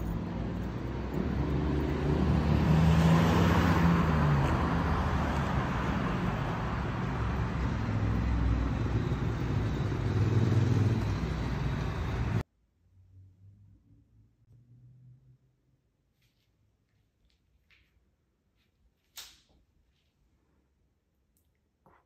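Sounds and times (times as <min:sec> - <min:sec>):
cars passing on road: 0:00.0 - 0:12.4.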